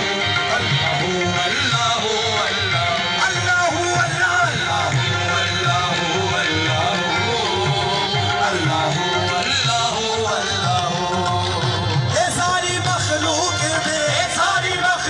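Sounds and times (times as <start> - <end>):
harmoniums playing melody: 0.0 - 15.0
tabla rhythm: 0.0 - 15.0.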